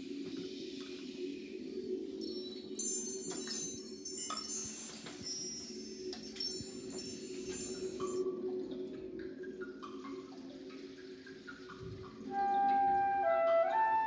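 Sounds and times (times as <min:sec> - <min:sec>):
wind chimes shimmering: 0:02.2 - 0:08.3.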